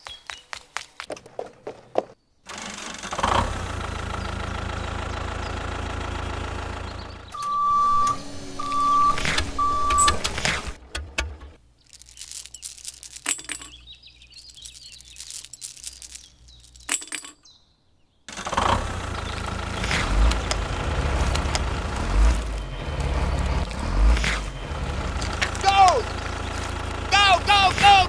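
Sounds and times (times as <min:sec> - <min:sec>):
small metal chain clinking: 0:11.8 - 0:17.6.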